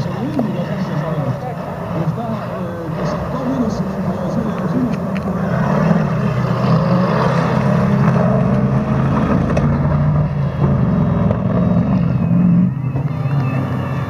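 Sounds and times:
buggy engine running loud: 0.0 - 14.0.

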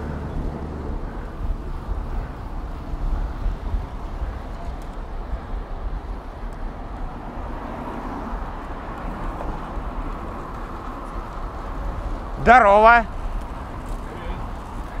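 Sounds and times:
wind on microphone: 0.0 - 12.4, 13.1 - 15.0
tyres hissing on road: 0.0 - 15.0.

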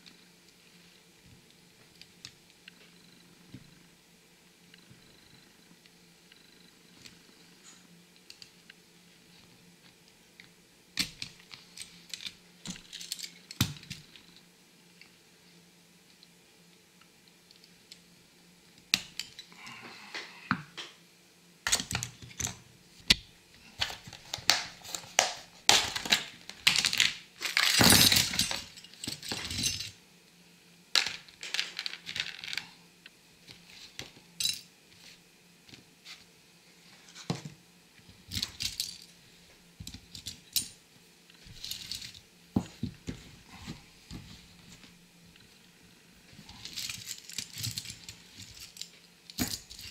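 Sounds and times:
metal toy parts clinking: 11.8 - 14.0, 25.8 - 30.0.

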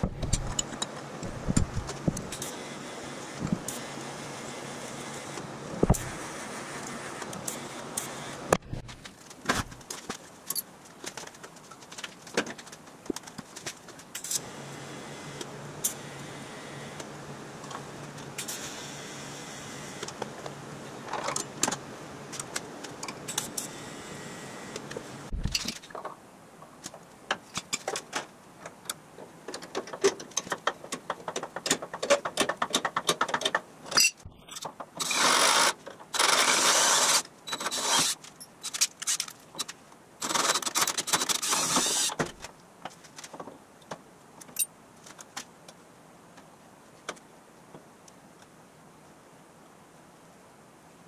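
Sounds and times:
cordless drill boring into metal: 35.0 - 38.2, 41.2 - 42.2.

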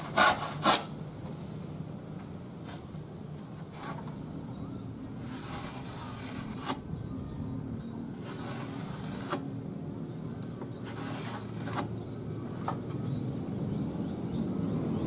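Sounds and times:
knife scratching along wood: 0.0 - 0.9, 5.2 - 6.9, 8.1 - 9.6, 10.7 - 12.0
steady low hum: 0.0 - 15.0.

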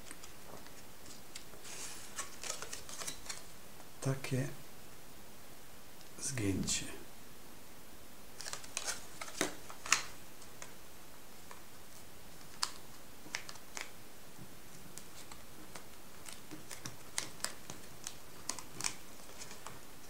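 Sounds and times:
paper crackling while folded: 0.0 - 3.5, 8.4 - 10.8, 14.7 - 19.8.

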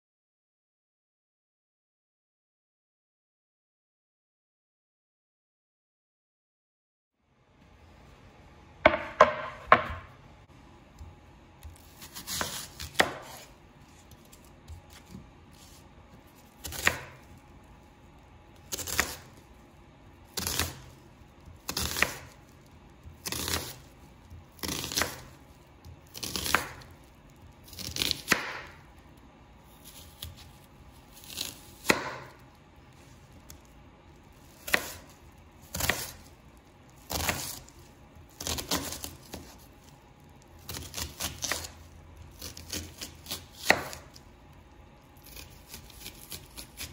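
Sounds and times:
knife slicing onion on board: 8.9 - 10.1, 11.0 - 17.3, 18.7 - 19.4, 20.4 - 20.9, 21.6 - 22.4, 23.1 - 26.9, 27.7 - 28.8, 29.7 - 32.4, 34.4 - 36.3, 37.0 - 37.7, 38.3 - 39.7, 40.6 - 41.8, 42.4 - 44.2, 45.2 - 46.9.

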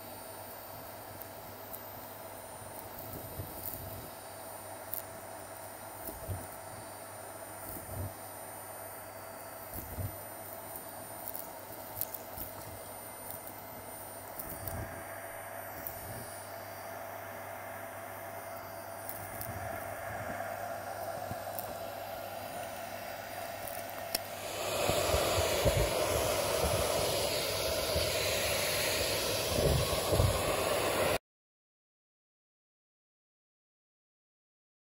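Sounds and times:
vacuum cleaner running: 0.0 - 31.2.

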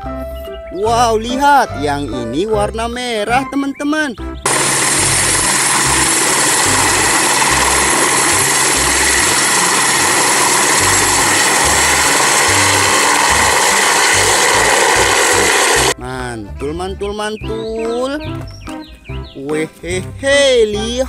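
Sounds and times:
helicopter rotor chopping: 4.4 - 16.0
helicopter turbine whine: 4.4 - 16.0.

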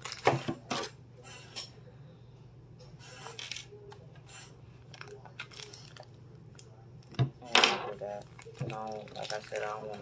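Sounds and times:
plastic packaging rustling: 0.0 - 0.9, 4.8 - 6.2, 7.9 - 10.0.

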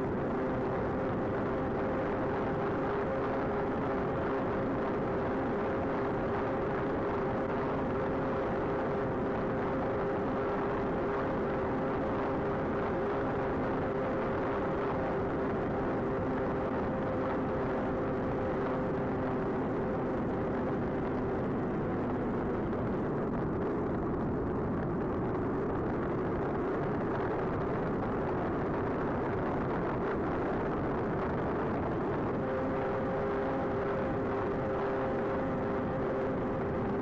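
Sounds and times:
wind rush: 0.0 - 37.0.

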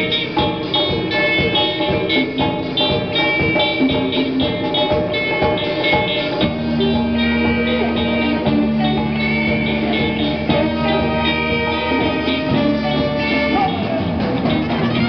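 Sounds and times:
bass guitar: 0.0 - 15.0
drum kit: 0.0 - 15.0
electric guitars: 0.0 - 15.0
saxophone: 0.0 - 15.0
trumpet: 5.4 - 15.0.

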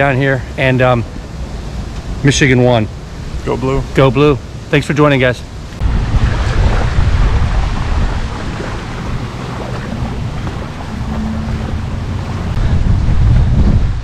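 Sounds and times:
wind buffeting microphone: 5.6 - 14.0
small waves washing on sand: 5.8 - 13.2.

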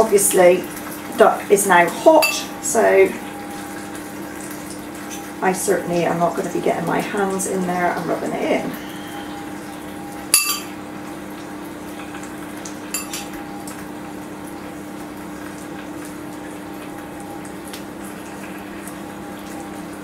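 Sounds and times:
kitchen hum: 0.0 - 20.0
metal utensil clinking dish: 10.4 - 10.7, 13.0 - 13.3.

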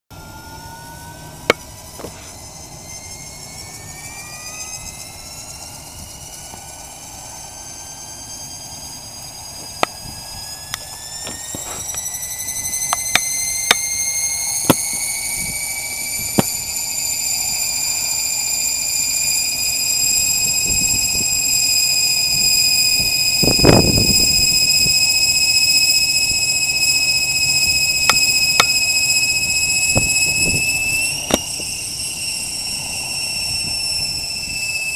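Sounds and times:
electric motor and gear whine: 0.1 - 34.9
sharp clicks: 12.8 - 15.1, 28.1 - 28.9.

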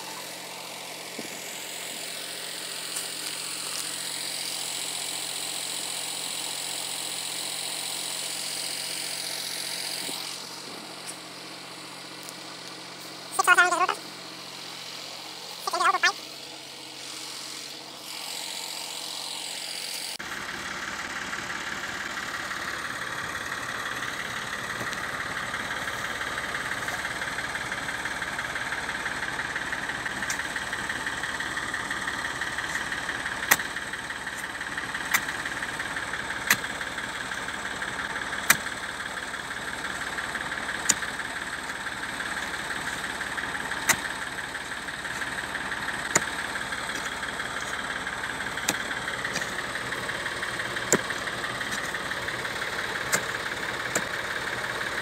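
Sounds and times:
diesel engine running: 0.0 - 55.0
hoe striking soil: 29.9 - 31.1, 32.3 - 55.0.

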